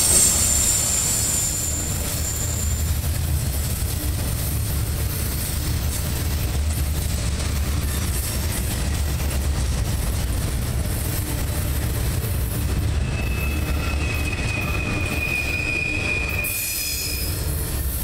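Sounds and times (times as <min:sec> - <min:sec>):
high wheel squeal: 0:00.0 - 0:03.2, 0:12.9 - 0:17.9
train wheels rumbling on rails: 0:00.0 - 0:18.0.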